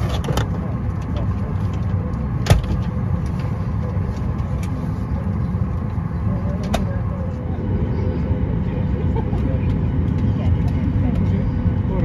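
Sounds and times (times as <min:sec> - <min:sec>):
airplane cabin rumble: 0:00.0 - 0:12.0.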